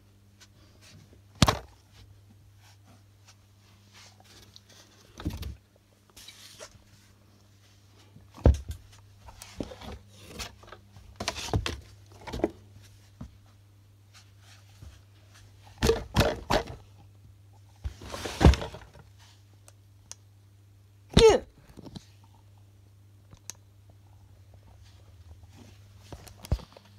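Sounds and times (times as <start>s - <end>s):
low steady hum: 0.0s - 26.9s
handling thumps and knocks: 1.4s - 1.8s, 8.3s - 12.6s, 15.8s - 16.9s.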